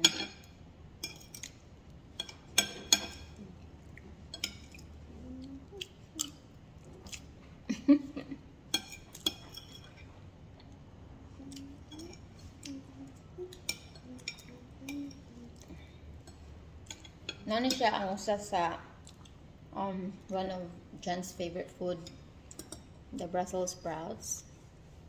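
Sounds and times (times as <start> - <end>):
cutlery clinking on a plate: 2.2 - 3.4
chewing: 3.4 - 7.5, 19.0 - 19.4.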